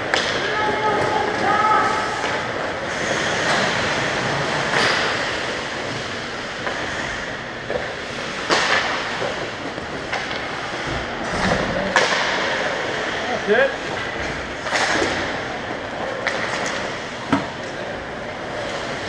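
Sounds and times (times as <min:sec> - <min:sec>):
skates scraping on ice: 0:00.0 - 0:19.0.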